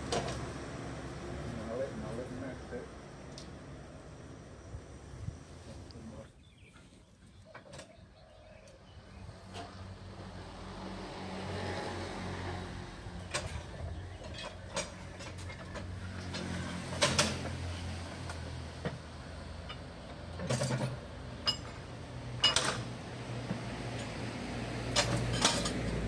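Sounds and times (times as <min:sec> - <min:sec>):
metal clanks and knocks: 0:13.2 - 0:24.1, 0:24.9 - 0:26.0.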